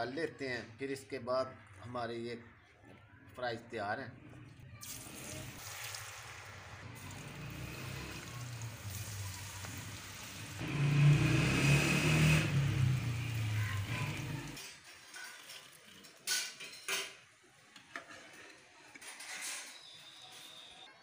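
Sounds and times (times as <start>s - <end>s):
loud sizzling and bubbling: 4.8s - 15.6s
fries sizzling in hot oil: 4.8s - 16.4s.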